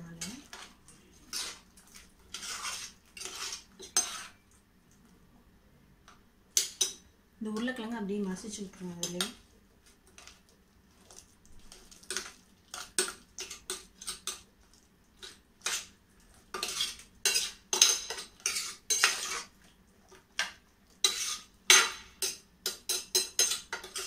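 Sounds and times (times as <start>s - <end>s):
metal ladle scraping a pot: 1.3s - 1.6s, 2.3s - 4.4s, 16.5s - 19.5s, 21.0s - 21.5s.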